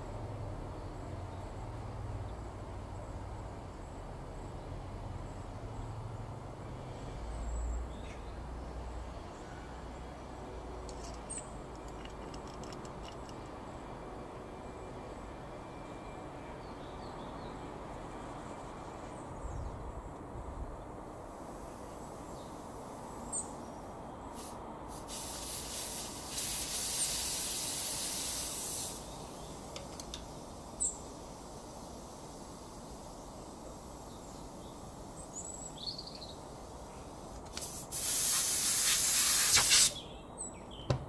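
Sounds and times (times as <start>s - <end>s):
outdoor background noise: 0.0s - 41.0s
high hiss: 21.1s - 40.0s.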